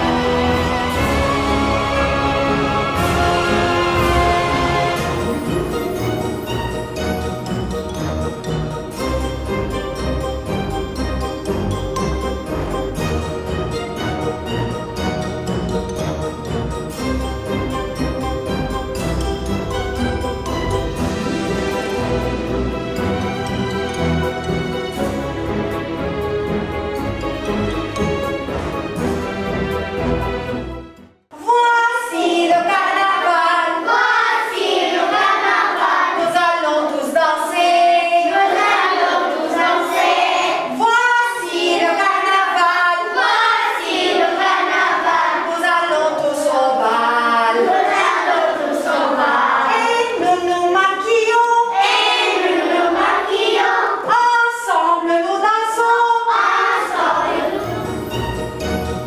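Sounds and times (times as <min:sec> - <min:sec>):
children singing together: 0:00.0 - 0:06.2, 0:32.0 - 0:50.2, 0:51.6 - 0:54.1, 0:56.0 - 0:58.0.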